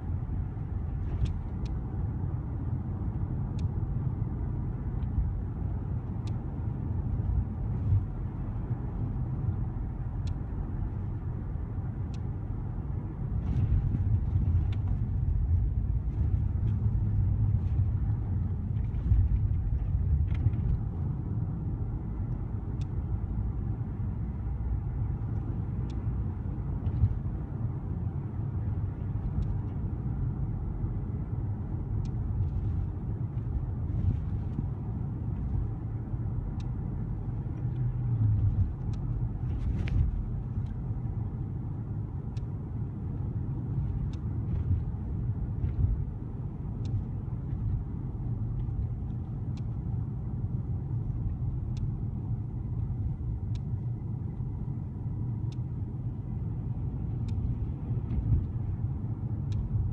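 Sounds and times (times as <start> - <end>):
car engine and tyre rumble: 0.0 - 59.9
faint light clicks: 22.3 - 23.0, 48.5 - 49.9, 51.1 - 52.0, 55.4 - 55.7, 57.1 - 58.8, 59.5 - 59.9.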